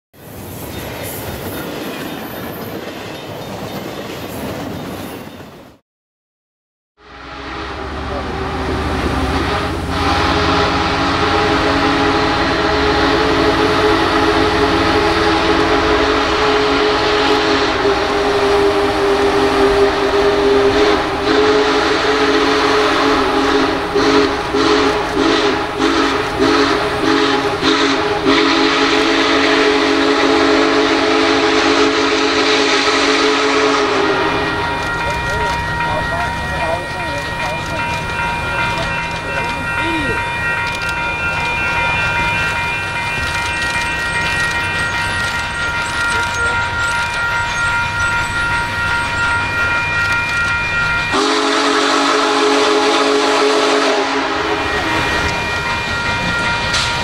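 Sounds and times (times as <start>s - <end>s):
freight train rolling past: 0.2s - 5.8s, 7.0s - 57.0s
steam locomotive whistle blast: 7.0s - 37.9s, 49.0s - 57.0s.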